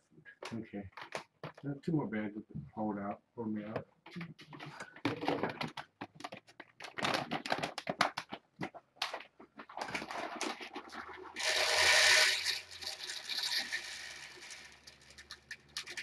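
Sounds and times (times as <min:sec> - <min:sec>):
loud rough scrape: 0:10.9 - 0:15.3.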